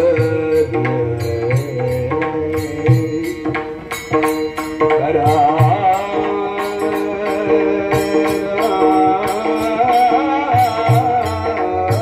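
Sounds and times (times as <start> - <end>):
hand cymbals: 0.0 - 12.0
men singing together: 5.0 - 12.0.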